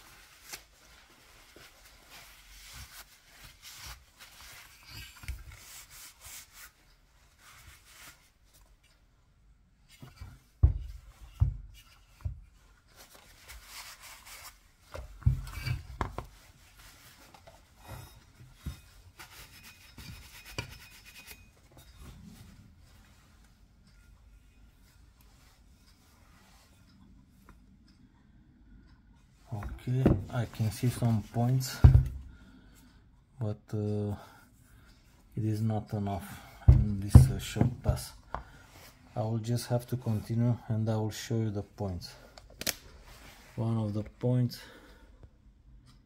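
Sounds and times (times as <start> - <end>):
cloth rag rubbing metal: 0.0 - 8.4, 13.0 - 14.8, 15.4 - 23.2.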